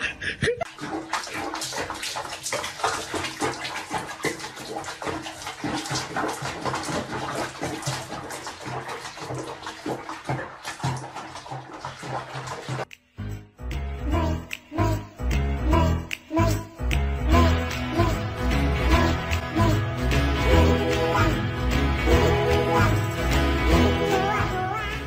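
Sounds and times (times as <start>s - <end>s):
water splashing in sink: 0.6s - 13.0s, 17.3s - 25.0s.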